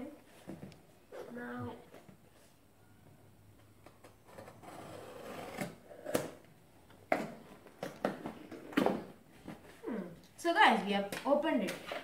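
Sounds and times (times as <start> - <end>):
tape and cardboard tearing: 4.3 - 6.4.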